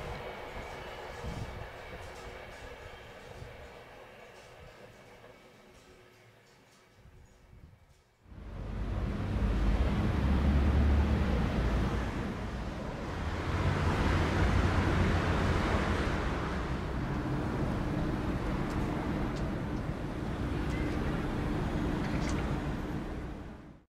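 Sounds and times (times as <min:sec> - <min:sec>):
wind: 0:00.0 - 0:23.9
distant traffic: 0:08.3 - 0:23.8.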